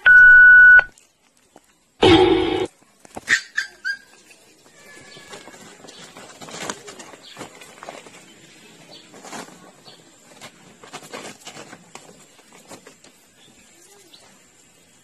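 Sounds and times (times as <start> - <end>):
puppies rustling and scuffing: 4.0 - 14.8.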